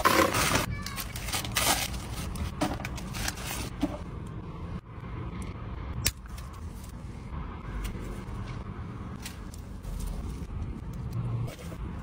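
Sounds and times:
paper wrapper crinkling: 0:00.0 - 0:03.7.

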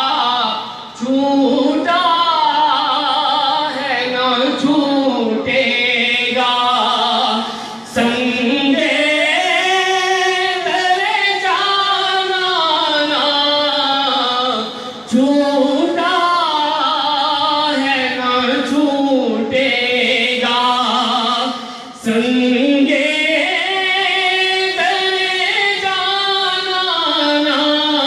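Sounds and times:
man singing into microphone: 0:00.0 - 0:28.0
man breathing: 0:07.4 - 0:07.9, 0:21.6 - 0:22.0.

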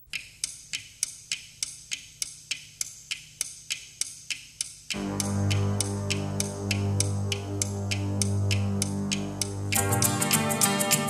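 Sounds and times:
clock ticking: 0:00.0 - 0:11.0
instrumental music with low chords: 0:04.9 - 0:11.0.

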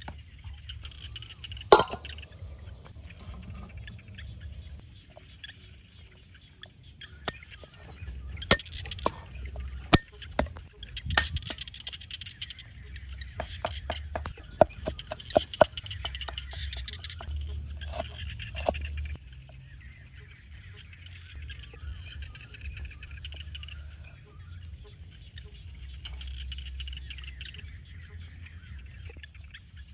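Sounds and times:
cleaver chopping on wooden board: 0:13.4 - 0:18.9.

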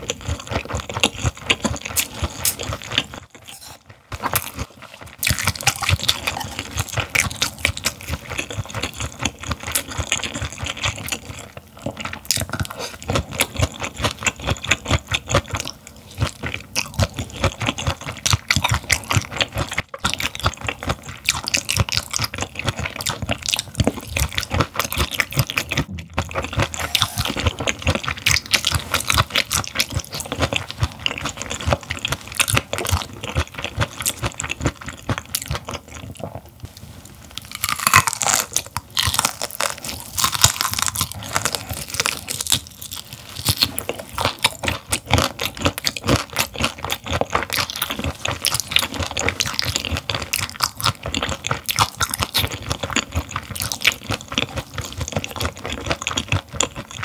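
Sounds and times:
wet crunching of chewing fish: 0:00.0 - 0:36.7, 0:37.3 - 0:57.0.

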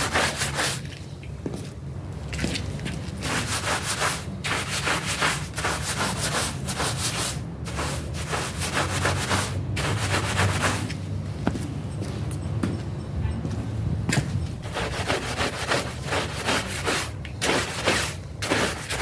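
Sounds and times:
deck brush scrubbing wet rug: 0:00.0 - 0:00.9, 0:03.2 - 0:10.9, 0:14.6 - 0:19.0.

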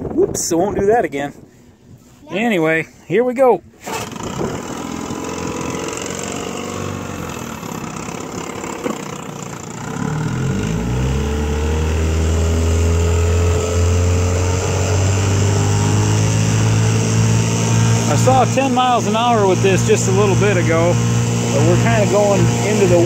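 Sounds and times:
outboard engine revving: 0:03.8 - 0:23.0.

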